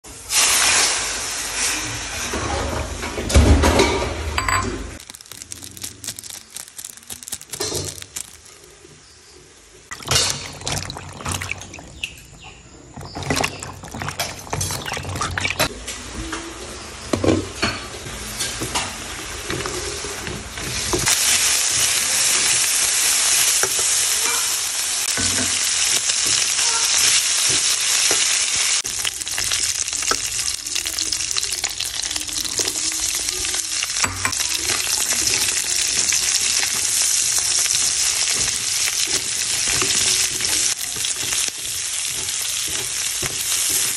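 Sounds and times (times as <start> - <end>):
meat sizzling in a wok: 0.1 - 4.2, 5.0 - 8.8, 17.8 - 43.9
spatula scraping wok: 37.9 - 43.9.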